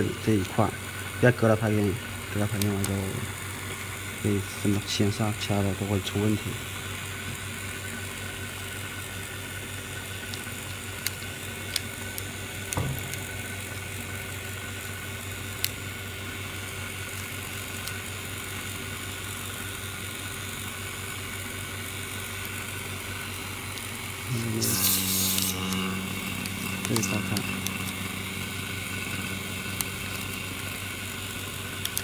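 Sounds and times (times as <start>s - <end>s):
machine humming: 0.0s - 10.6s, 11.4s - 32.0s
sharp light clicks: 31.8s - 32.0s.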